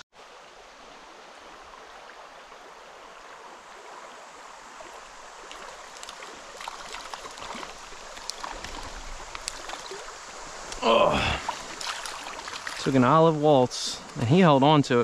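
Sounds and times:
stream rushing over rocks: 0.2 - 15.0
fish splashing at surface: 5.5 - 10.2, 10.8 - 12.9.

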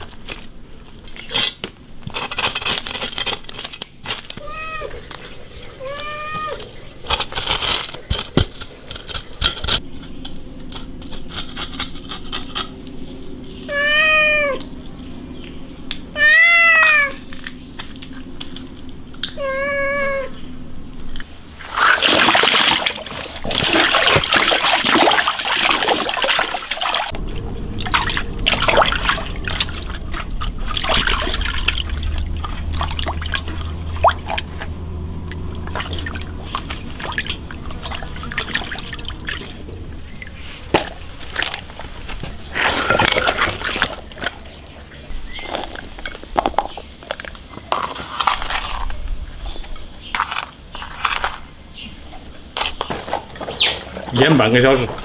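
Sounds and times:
water splashing in metal basin: 21.6 - 46.2.

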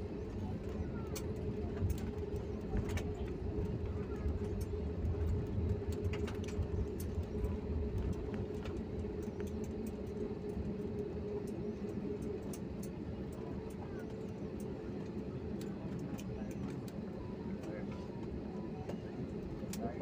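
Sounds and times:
airliner cabin rumble: 0.0 - 20.0
jet engine hum: 0.0 - 20.0.

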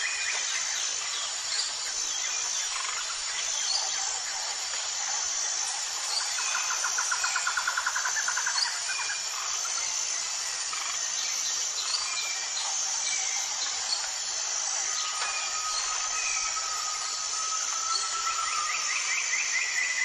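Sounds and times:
high insect drone: 0.0 - 20.0
thin steady whistle: 15.0 - 19.6.

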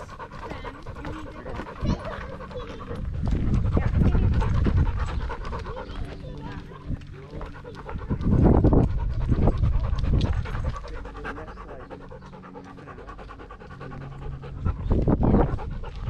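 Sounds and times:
dog panting: 0.0 - 16.0.

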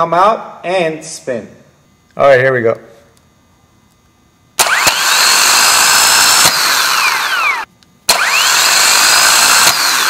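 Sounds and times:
starter motor whining: 4.6 - 10.0.

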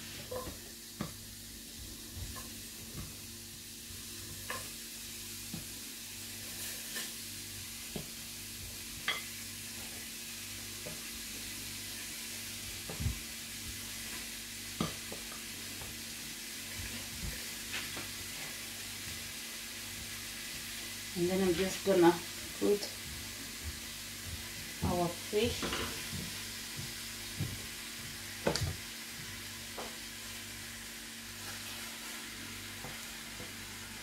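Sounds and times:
onion slices tapping in skillet: 14.8 - 16.0, 28.4 - 30.0.

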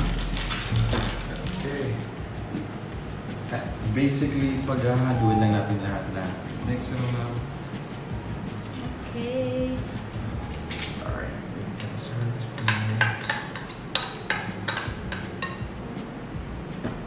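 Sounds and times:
spoon clinking against bowl: 12.6 - 15.6.

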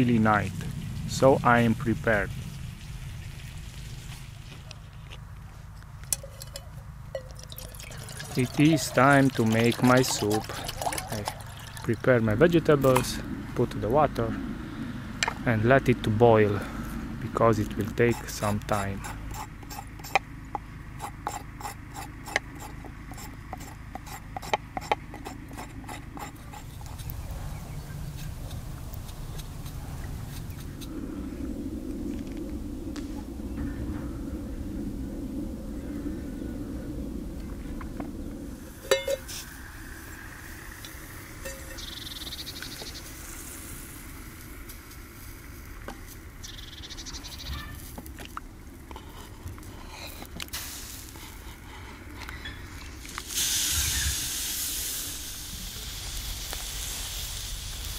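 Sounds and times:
low steady rumble: 0.0 - 57.9
knife peeling a potato: 21.0 - 27.2.

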